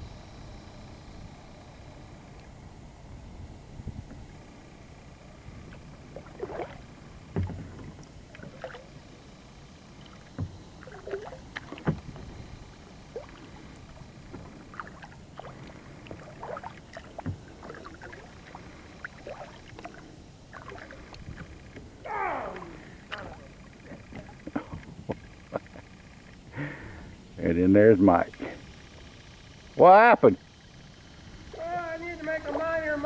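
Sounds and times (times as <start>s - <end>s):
paddle splashing in water: 5.7s - 9.0s, 9.9s - 21.8s
paddle knocks: 7.3s - 8.7s, 10.3s - 12.4s.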